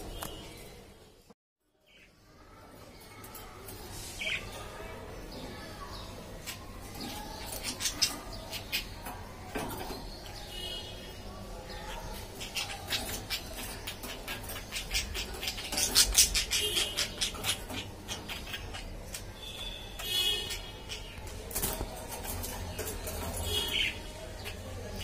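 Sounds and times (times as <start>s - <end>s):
budgerigars chirping and chattering: 4.0s - 25.0s.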